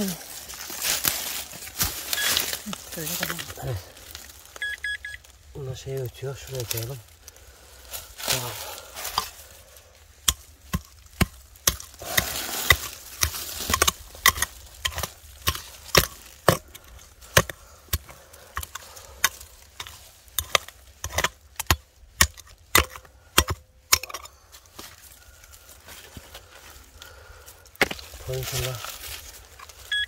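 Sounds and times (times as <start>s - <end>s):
digging tool striking stony ground: 8.2s - 9.4s, 10.2s - 25.0s, 27.7s - 29.8s.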